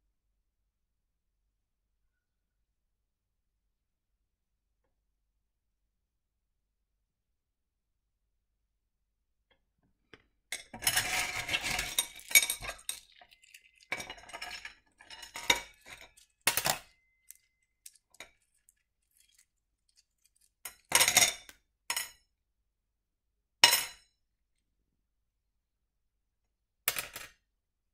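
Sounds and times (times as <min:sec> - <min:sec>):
stones clinking and rattling: 0:10.8 - 0:21.5.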